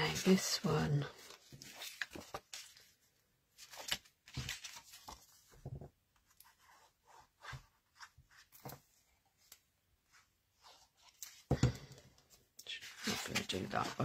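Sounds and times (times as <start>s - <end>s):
paper rustling and scraping: 0.2s - 3.0s, 3.6s - 8.8s, 12.8s - 14.0s.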